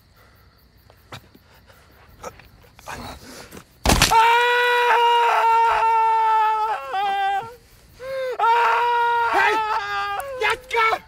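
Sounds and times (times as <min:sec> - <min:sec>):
long high-pitched scream: 0:04.1 - 0:11.0.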